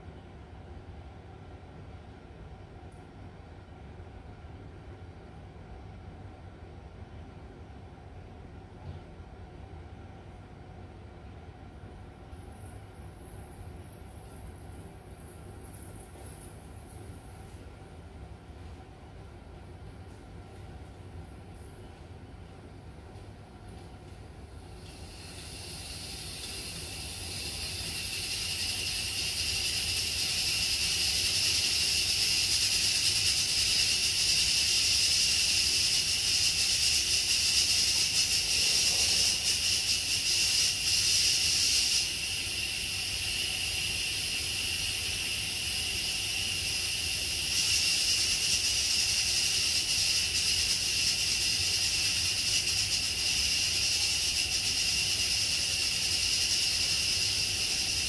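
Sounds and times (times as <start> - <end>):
steam hissing from valve: 24.6 - 58.0.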